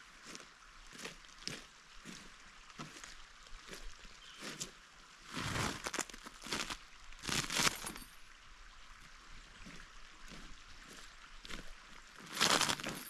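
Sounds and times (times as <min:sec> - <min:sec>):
canvas dragged over wood chips: 0:05.3 - 0:08.0, 0:12.3 - 0:13.0.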